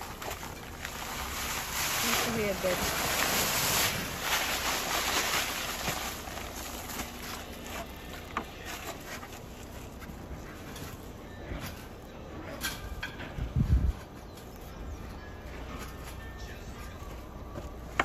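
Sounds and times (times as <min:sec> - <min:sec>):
dry concrete mix pouring from bag: 0:00.0 - 0:10.0.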